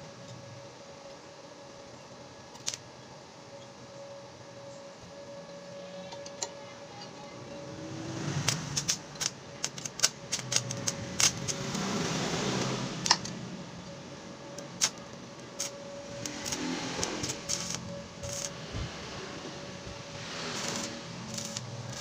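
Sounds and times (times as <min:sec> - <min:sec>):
faint steady hum: 0:00.0 - 0:22.0
welding arc crackling: 0:02.5 - 0:02.9, 0:07.8 - 0:13.8, 0:14.4 - 0:22.0.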